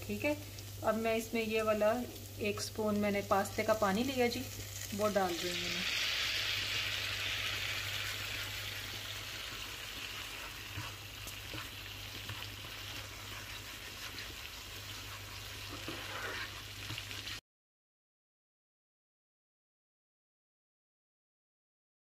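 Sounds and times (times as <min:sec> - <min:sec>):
sauce sizzling in a frying pan: 0:00.0 - 0:17.4.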